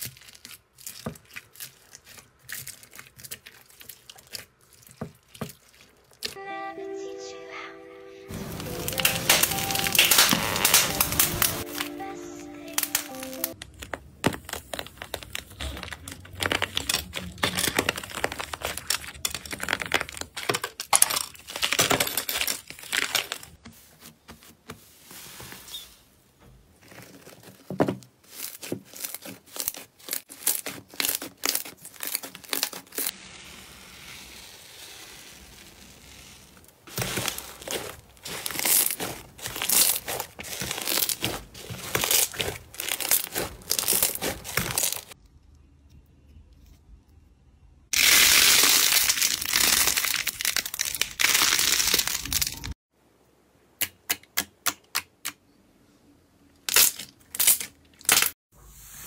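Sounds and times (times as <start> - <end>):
slime crackling and tearing: 0.0 - 6.4, 8.4 - 12.0, 12.7 - 23.6, 28.2 - 45.2, 47.9 - 52.8.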